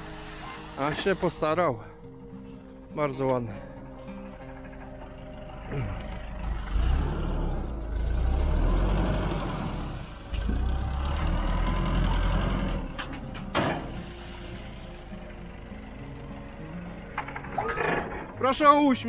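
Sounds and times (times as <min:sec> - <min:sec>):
sand sliding off truck bed: 0:00.0 - 0:01.5
truck engine running: 0:00.0 - 0:19.0.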